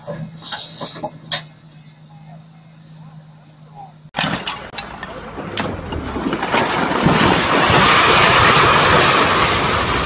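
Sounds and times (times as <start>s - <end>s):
falling masonry rumble: 4.2s - 10.0s.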